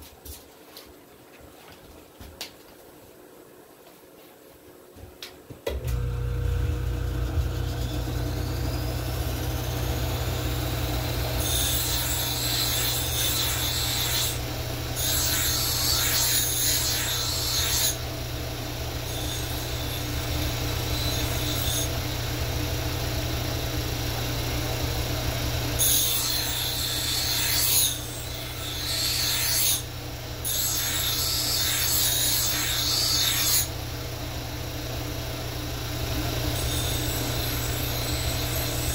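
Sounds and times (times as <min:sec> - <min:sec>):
power tool motor humming: 0:05.7 - 0:18.1, 0:36.3 - 0:38.9.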